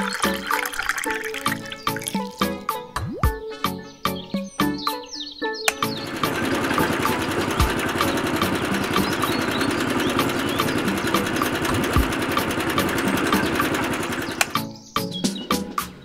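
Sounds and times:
small electric motor running: 6.0s - 14.6s.

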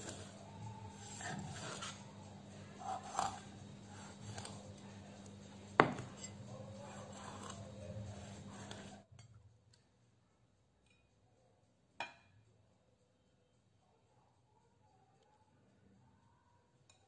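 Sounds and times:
knife slicing and scraping fish: 0.0s - 5.3s, 5.9s - 9.0s
sharp knock on cutting board: 5.8s - 6.1s.

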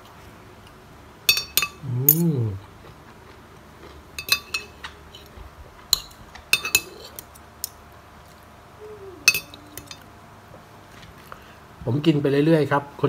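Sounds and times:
cutlery clinking against a plate: 1.3s - 2.3s, 4.2s - 5.3s, 5.9s - 7.8s, 9.3s - 10.0s.

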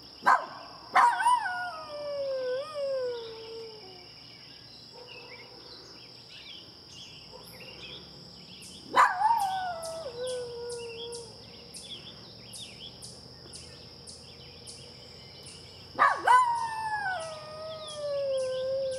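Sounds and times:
small dog howling: 9.0s - 11.4s, 16.0s - 18.9s.

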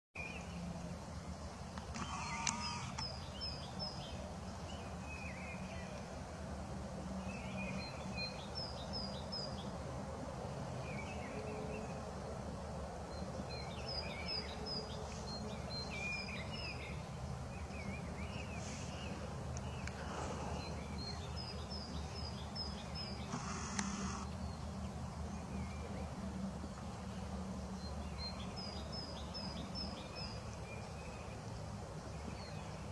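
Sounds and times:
small birds chirping: 0.2s - 6.2s, 13.1s - 32.9s.

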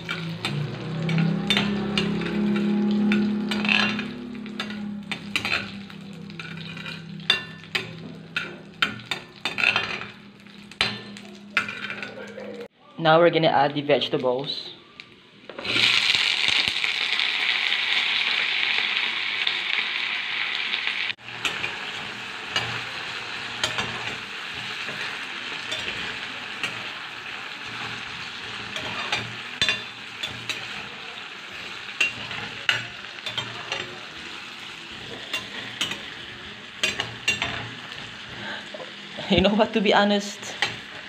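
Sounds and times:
spoon scraping a pan: 0.0s - 12.2s, 21.3s - 38.5s
vegetables sizzling in butter: 0.0s - 12.7s, 15.1s - 41.0s.

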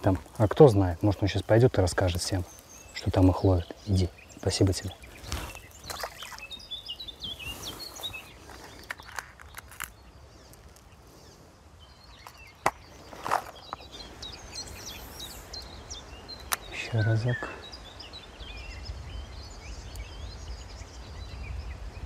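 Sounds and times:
small birds chirping: 0.0s - 22.0s
steady outdoor hiss: 0.0s - 22.0s
fishing tackle clicks and rustles: 7.7s - 10.9s, 12.1s - 14.3s.

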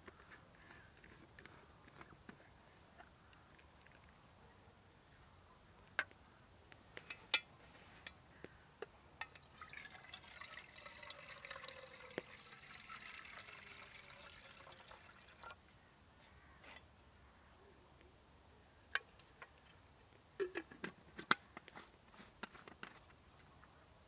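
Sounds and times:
liquid pouring: 9.2s - 15.6s.

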